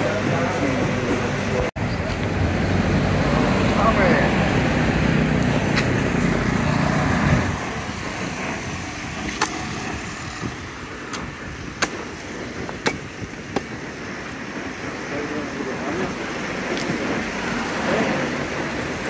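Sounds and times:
street traffic hum: 0.0 - 19.0
cleaver chopping on wooden block: 12.8 - 13.7.

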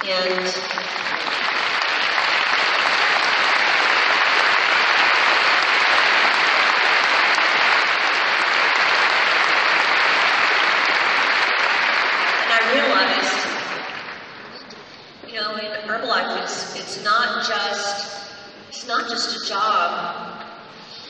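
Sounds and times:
audience applauding: 0.0 - 14.4.

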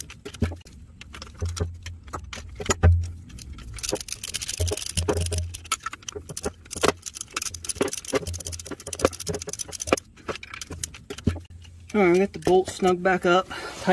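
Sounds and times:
dull bumps of tools: 0.0 - 12.9
socket ratchet clicking: 2.7 - 11.4.

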